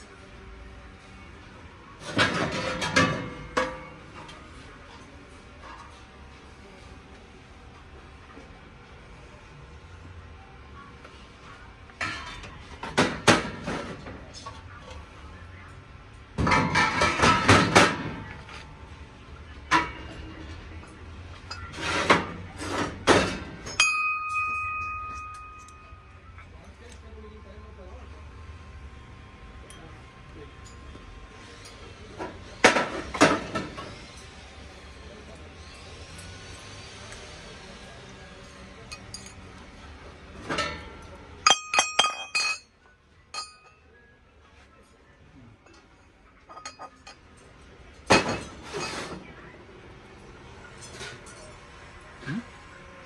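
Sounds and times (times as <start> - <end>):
brass utensils clattering: 41.4 - 42.7, 43.3 - 43.7, 46.5 - 47.2.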